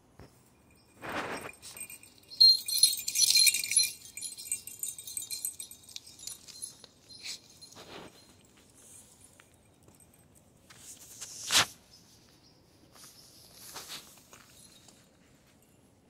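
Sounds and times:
dog collar tags jingling: 0.4s - 10.8s, 14.2s - 15.8s.

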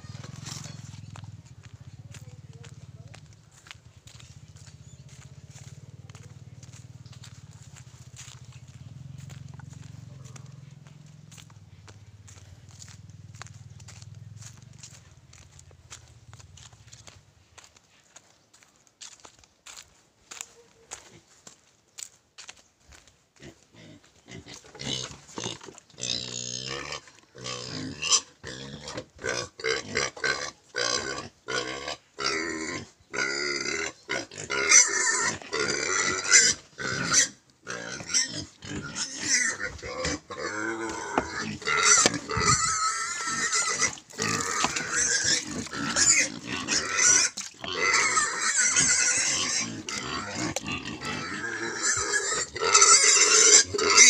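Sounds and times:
pigs squealing: 23.8s - 54.0s.

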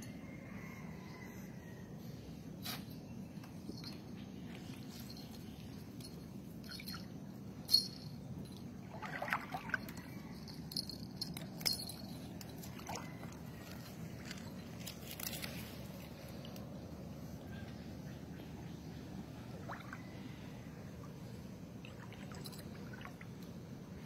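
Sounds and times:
high tinkles: 3.6s - 8.8s, 10.2s - 12.8s.

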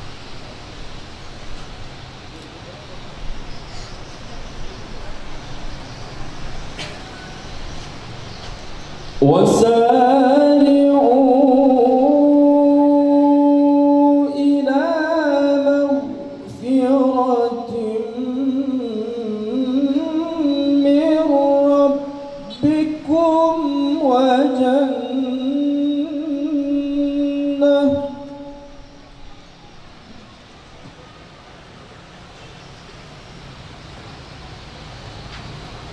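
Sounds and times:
man reciting melodically: 9.2s - 29.0s.

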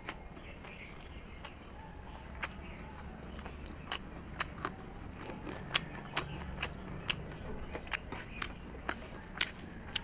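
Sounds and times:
wet mouth chewing clicks and smacks: 0.0s - 10.0s.

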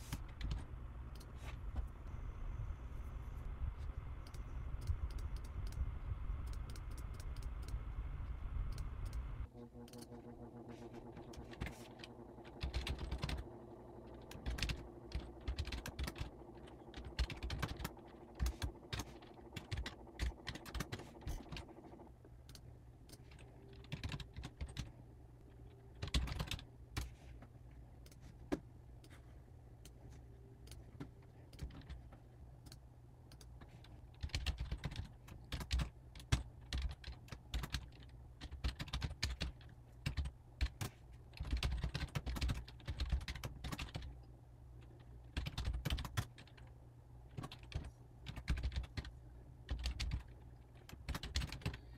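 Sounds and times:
typing on computer keyboard: 11.0s - 24.9s, 25.9s - 27.2s, 31.5s - 32.0s, 32.6s - 44.2s, 45.3s - 46.7s, 47.3s - 49.1s, 49.7s - 51.9s.

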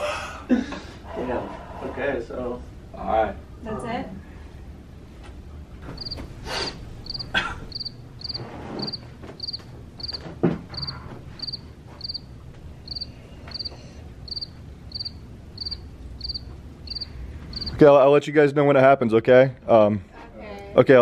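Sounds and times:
cricket chirping: 6.0s - 17.8s.

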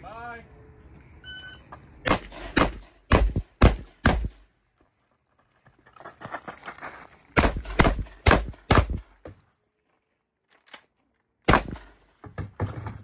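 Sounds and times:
gunshots: 2.0s - 4.4s, 7.4s - 9.0s, 11.5s - 12.0s.

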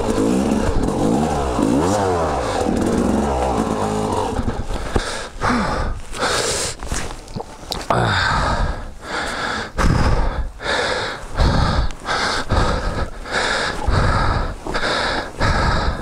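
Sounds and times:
person gasping for breath: 2.4s - 7.0s, 7.8s - 16.0s.

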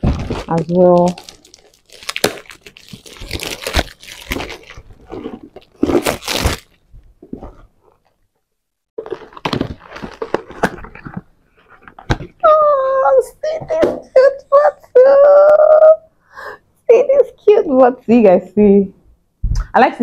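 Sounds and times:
packaging crinkling and tearing: 0.0s - 8.2s, 9.0s - 12.3s.

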